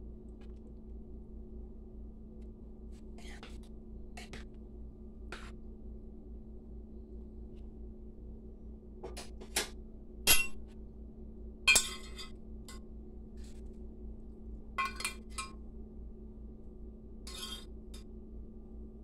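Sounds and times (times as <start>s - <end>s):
faint steady hum: 0.0s - 19.0s
metal spoon clinking glass dish: 11.7s - 12.3s, 14.8s - 15.5s, 17.3s - 17.7s.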